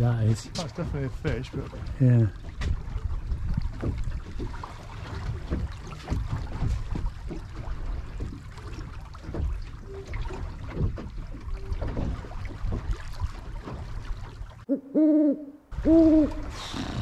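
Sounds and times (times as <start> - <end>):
water slapping boat hull: 0.0 - 14.7, 15.7 - 17.0.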